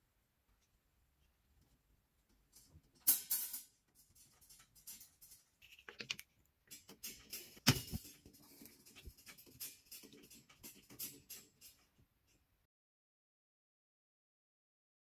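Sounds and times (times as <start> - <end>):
clicks and rattles of clothes airer: 2.3 - 12.4.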